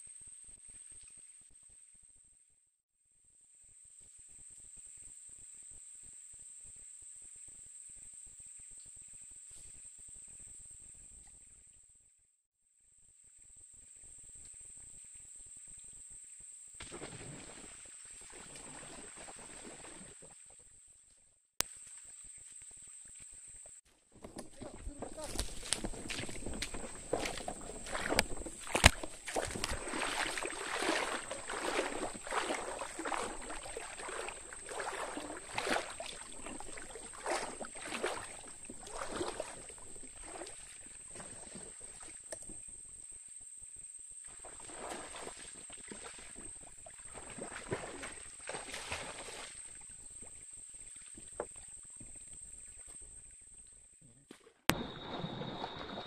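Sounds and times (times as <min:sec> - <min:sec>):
wading through water: 0:16.8 - 0:21.1, 0:21.7 - 0:42.7, 0:44.2 - 0:54.0, 0:54.7 - 0:56.0.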